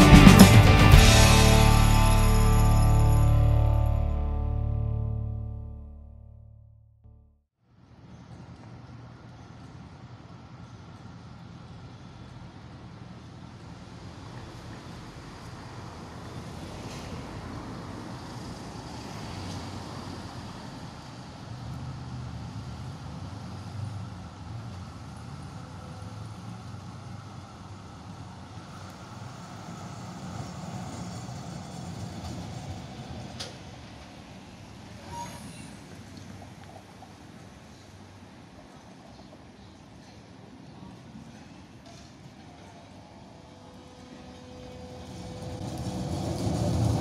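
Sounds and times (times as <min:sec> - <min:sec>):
tram rumbling on rails: 0:08.9 - 0:47.0
brief squeal: 0:34.9 - 0:36.0.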